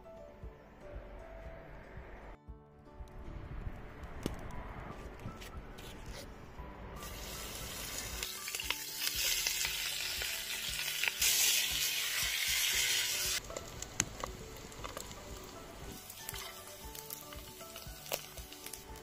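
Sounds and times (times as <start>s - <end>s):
pork sizzling in hot oil: 7.0s - 19.0s.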